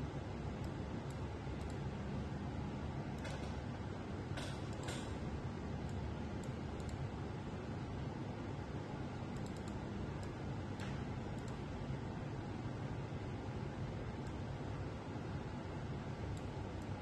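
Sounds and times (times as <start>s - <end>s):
steady low hum: 0.0s - 17.0s
keyboard and mouse clicks: 0.6s - 1.8s, 3.2s - 3.6s, 4.3s - 5.2s, 5.8s - 7.1s, 9.3s - 11.7s.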